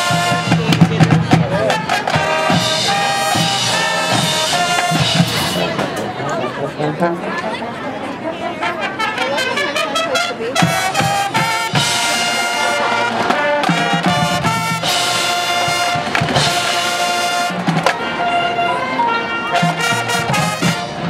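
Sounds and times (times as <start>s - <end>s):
drum hits: 0.0s - 6.2s, 13.2s - 18.0s
brass chords: 0.0s - 7.4s, 8.5s - 21.0s.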